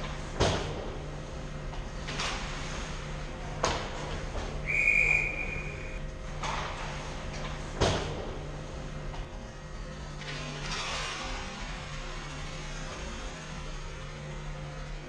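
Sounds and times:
referee's whistle blast: 0:04.6 - 0:06.0.

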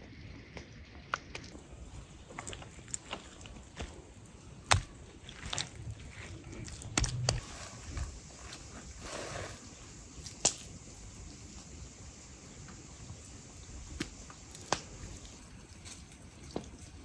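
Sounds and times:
hands slapping wet clay: 0:04.6 - 0:08.1, 0:10.3 - 0:10.7, 0:13.9 - 0:15.4.

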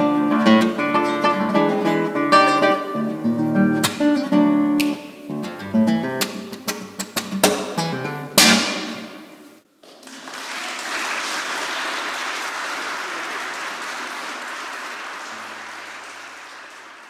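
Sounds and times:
classical guitar notes: 0:00.0 - 0:09.1
audience applause: 0:09.8 - 0:17.0.

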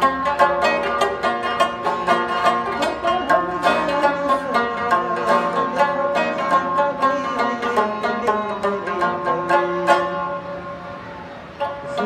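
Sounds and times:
plucked lute melody: 0:00.0 - 0:12.0.

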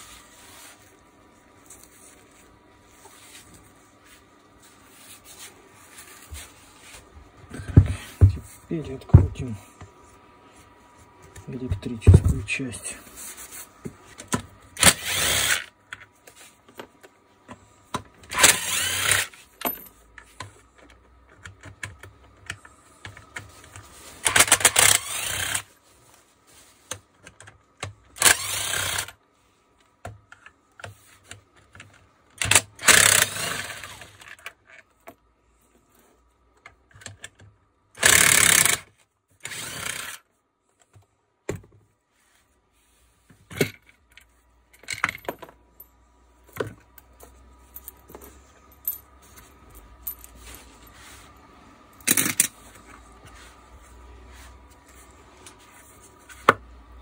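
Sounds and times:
screws and tools clinking: 0:18.3 - 0:21.0, 0:23.8 - 0:25.7, 0:32.4 - 0:34.5, 0:52.0 - 0:52.6.

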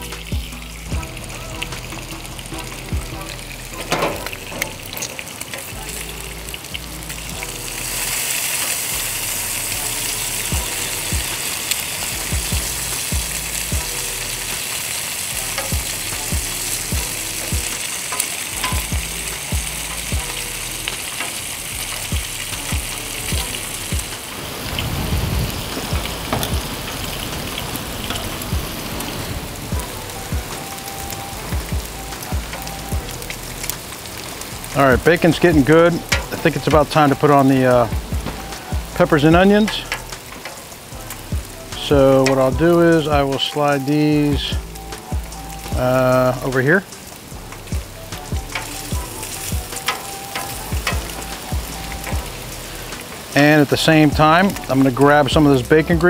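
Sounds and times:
food sizzling on a griddle: 0:00.0 - 0:56.0
metal tongs clicking: 0:17.4 - 0:20.1, 0:39.7 - 0:40.8.

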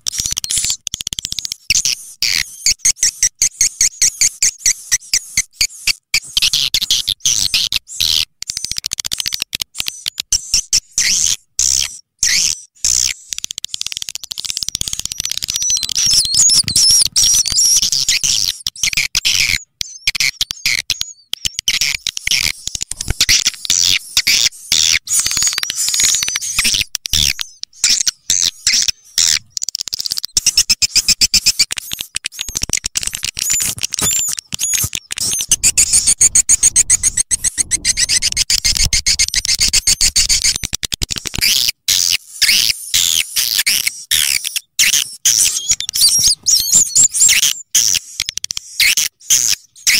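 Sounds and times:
swiftlets chirping and twittering: 0:09.9 - 0:40.7, 0:41.4 - 0:49.9
rising-and-falling chirps: 0:34.6 - 0:40.4.

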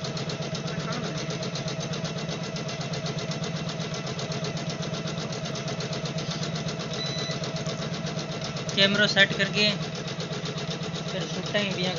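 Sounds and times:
embroidery machine stitching: 0:00.0 - 0:11.9.

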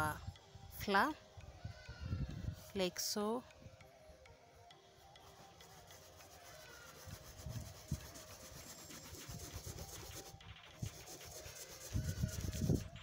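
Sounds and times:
cup scratching against sieve mesh: 0:05.8 - 0:13.0.

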